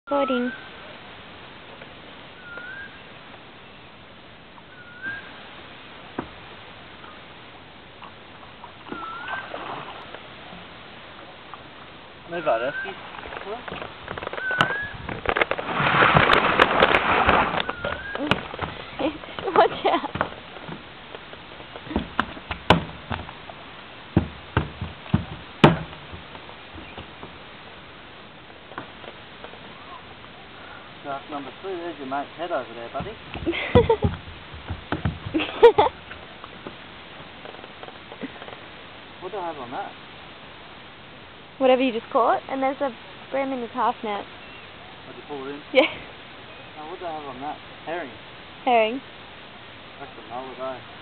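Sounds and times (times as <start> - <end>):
faint outdoor hiss: 0.0 - 51.0
bird whistling: 0.1 - 0.7, 2.4 - 3.0, 4.7 - 5.4, 8.9 - 9.5, 12.6 - 13.0, 14.3 - 15.0, 17.6 - 18.4
fish splashing in water: 8.7 - 10.7, 12.9 - 19.5
fish slapping on wet boards: 14.1 - 20.8, 21.7 - 23.5
knock: 24.2 - 26.3.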